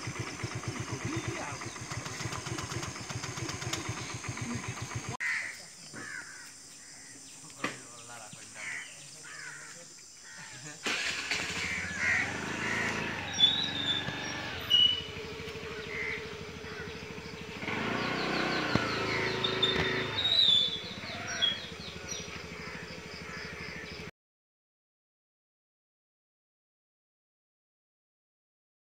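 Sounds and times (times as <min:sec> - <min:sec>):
birds calling: 0:00.0 - 0:24.1
crows cawing: 0:05.2 - 0:07.2, 0:08.5 - 0:13.8, 0:15.5 - 0:17.4, 0:18.6 - 0:24.1.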